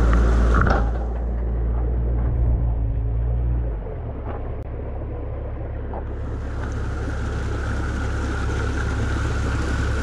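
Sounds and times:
low rumble: 0:00.0 - 0:10.0
water rushing through creek: 0:06.1 - 0:10.0.

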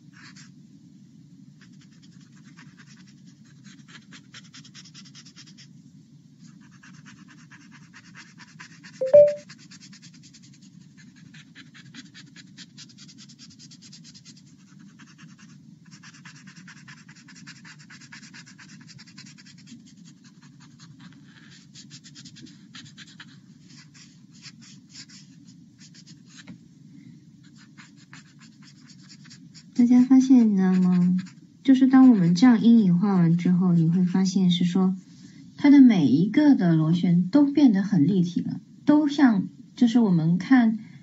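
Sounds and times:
pencil scratching on paper: 0:00.1 - 0:00.5, 0:01.6 - 0:05.7, 0:06.5 - 0:26.5, 0:27.4 - 0:34.2.

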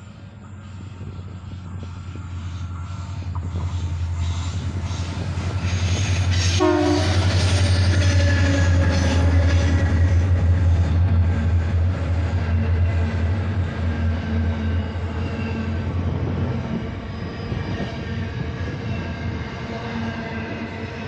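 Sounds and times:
diesel locomotive engines humming: 0:00.0 - 0:21.0
train horn blast: 0:06.4 - 0:10.4.

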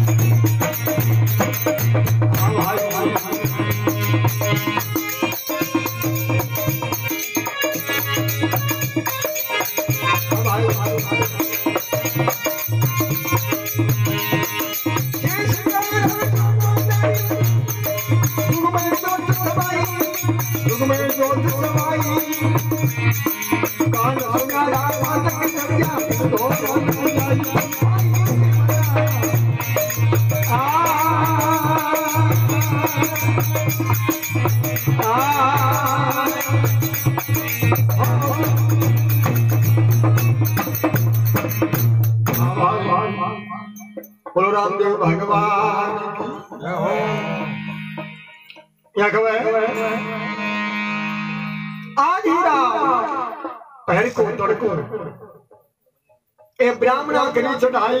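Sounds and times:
hand drum: 0:00.0 - 0:42.9
man singing into a microphone: 0:00.0 - 0:48.2, 0:48.9 - 0:50.7, 0:51.9 - 0:55.4
rattling percussion: 0:00.0 - 0:50.0, 0:51.1 - 0:58.0
harmonium melody: 0:00.0 - 0:54.8.

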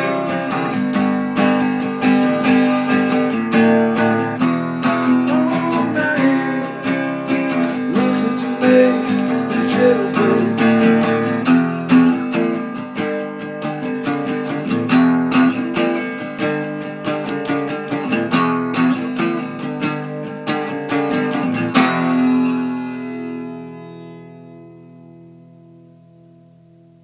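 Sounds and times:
acoustic guitar strumming: 0:00.0 - 0:27.0
sliding melody line: 0:03.4 - 0:12.0.

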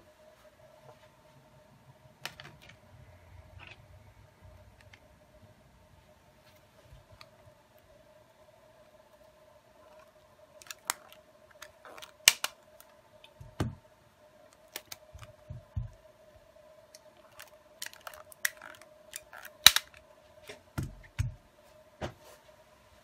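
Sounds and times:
faint steady hum: 0:00.0 - 0:23.0
rubber bands snapping: 0:10.6 - 0:12.6, 0:17.0 - 0:20.0.

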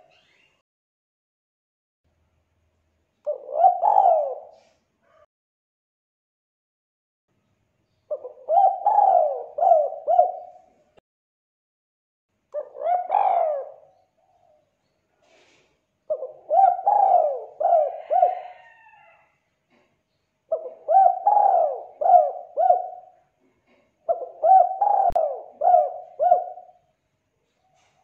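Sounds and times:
dove cooing: 0:03.3 - 0:05.3, 0:08.1 - 0:10.8, 0:12.6 - 0:14.6, 0:16.1 - 0:19.3, 0:20.5 - 0:26.8.

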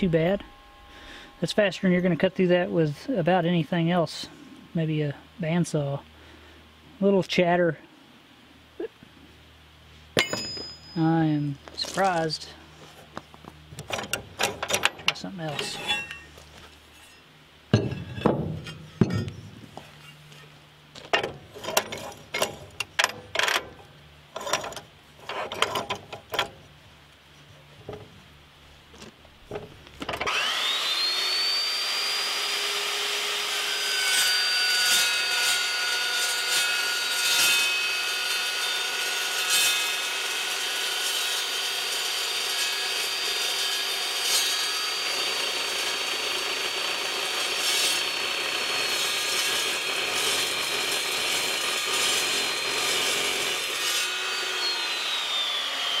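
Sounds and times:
chop saw motor whine: 0:00.0 - 0:02.4, 0:30.0 - 0:56.0
steel knocking and clunking: 0:10.2 - 0:10.9, 0:13.7 - 0:16.4, 0:17.0 - 0:20.2, 0:21.0 - 0:26.6
saw blade ringing through steel: 0:10.2 - 0:11.6, 0:15.5 - 0:16.4.

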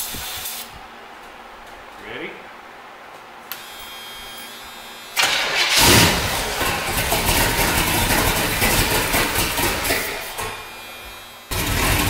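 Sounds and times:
car engine starting and running: 0:05.2 - 0:10.0
engine knocking: 0:06.6 - 0:09.9.

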